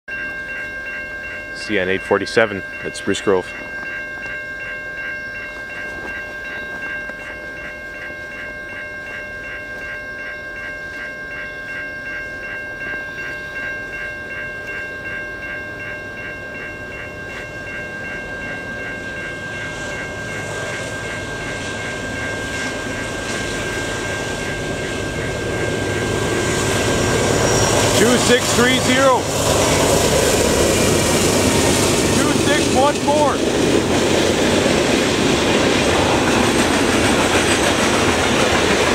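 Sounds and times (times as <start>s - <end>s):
crossing warning bell dinging: 0.1s - 38.9s
train rumble: 15.4s - 38.9s.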